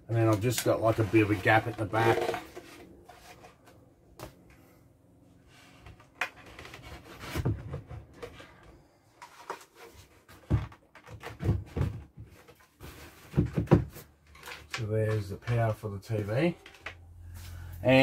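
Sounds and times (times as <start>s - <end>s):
wooden shelf knocking and bumping: 6.0s - 8.4s, 10.3s - 14.1s.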